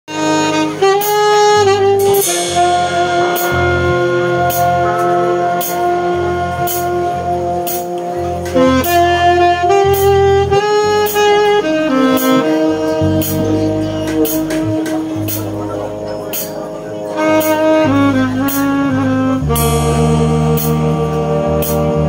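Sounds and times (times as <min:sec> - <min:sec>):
brass band playing slow tune: 0:00.1 - 0:22.0
saxophone long held notes: 0:00.1 - 0:22.0
cymbal strikes: 0:02.0 - 0:09.0, 0:19.5 - 0:22.0.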